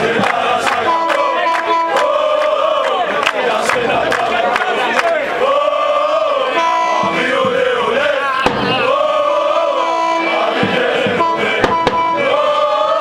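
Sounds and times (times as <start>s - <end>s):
crowd chanting in unison: 0.0s - 13.0s
sharp bang: 8.4s - 9.0s, 10.5s - 12.3s.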